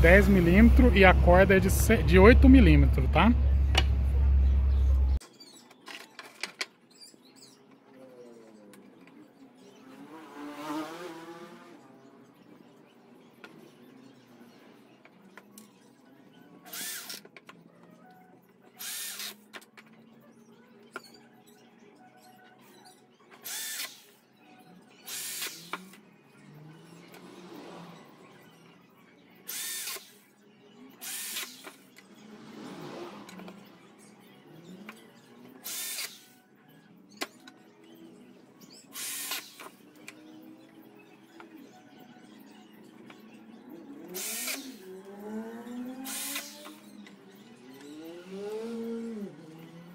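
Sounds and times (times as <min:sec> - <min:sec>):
electric drill boring into wood: 0:16.7 - 0:17.2, 0:18.8 - 0:19.3, 0:23.4 - 0:24.1, 0:25.1 - 0:25.9, 0:29.5 - 0:30.1, 0:31.0 - 0:31.7, 0:35.6 - 0:36.3, 0:39.0 - 0:39.7, 0:44.1 - 0:44.8, 0:46.0 - 0:46.8.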